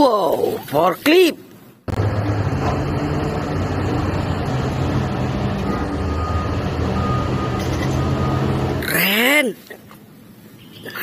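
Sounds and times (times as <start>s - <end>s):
diesel engines under load: 0.0s - 11.0s
faint high beep: 5.6s - 8.6s.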